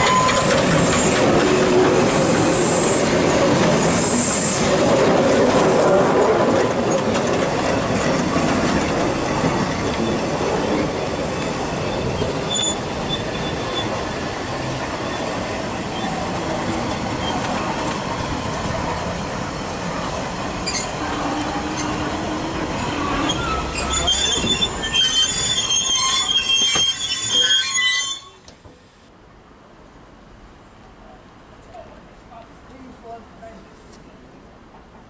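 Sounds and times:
train wheels squealing: 0.0s - 1.4s, 2.0s - 4.7s, 9.6s - 14.0s, 20.6s - 21.0s, 22.8s - 28.5s
train coaches rumbling on track: 0.0s - 28.8s.

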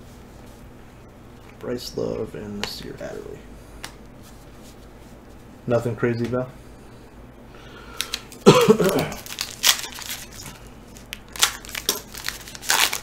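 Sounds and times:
foil wrapper tearing and crinkling: 8.0s - 13.0s.

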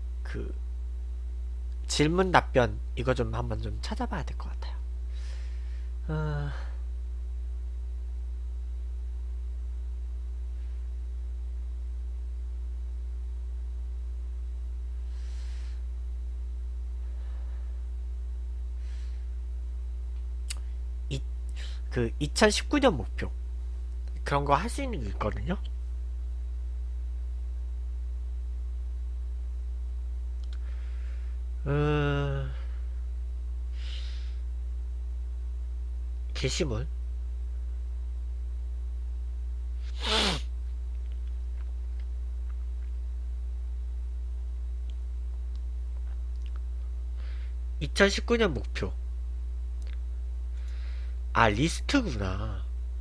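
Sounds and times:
low electrical hum: 0.0s - 53.0s
breath hiss: 5.1s - 6.8s, 15.0s - 15.9s, 18.7s - 19.4s, 21.5s - 21.9s, 33.7s - 34.5s, 39.8s - 40.5s, 47.1s - 47.6s, 50.5s - 51.2s
man humming hmm: 6.0s - 6.9s, 31.6s - 33.0s, 39.8s - 40.5s.

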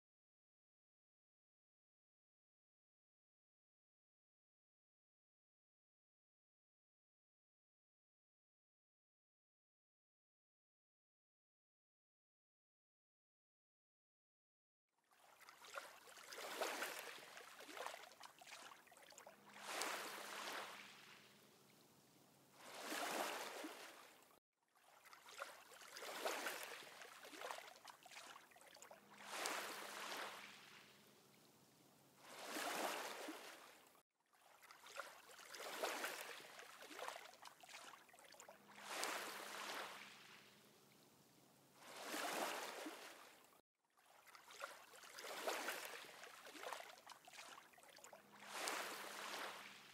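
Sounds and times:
rushing water: 15.2s - 21.5s, 22.5s - 31.1s, 32.2s - 40.4s, 41.9s - 43.5s, 44.1s - 49.9s.

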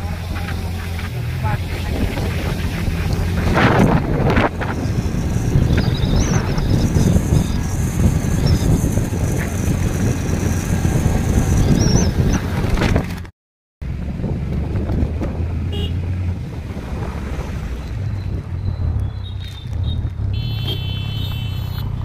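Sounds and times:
motorcycle engine running: 0.0s - 13.2s, 13.8s - 16.6s, 18.1s - 22.0s
road traffic: 0.0s - 22.0s
wind buffeting microphone: 0.1s - 13.2s, 13.9s - 20.3s
vehicle horn toot: 15.7s - 16.0s, 20.3s - 21.9s.

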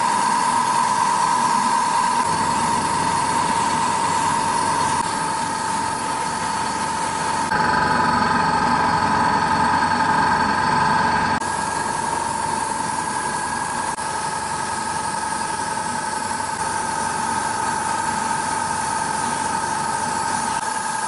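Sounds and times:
air compressor humming: 0.0s - 21.0s
airbrush spraying hiss: 1.2s - 7.5s, 11.4s - 21.0s.

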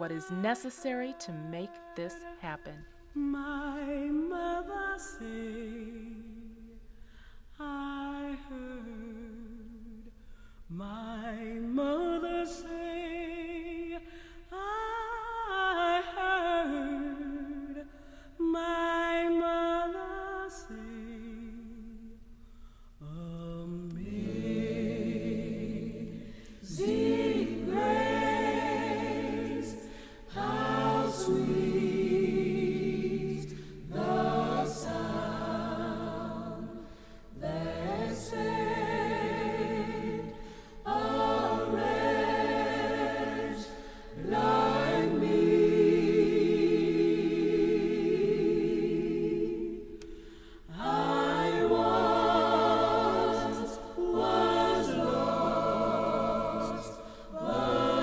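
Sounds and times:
unaccompanied voices singing: 0.0s - 6.8s, 23.0s - 58.0s.

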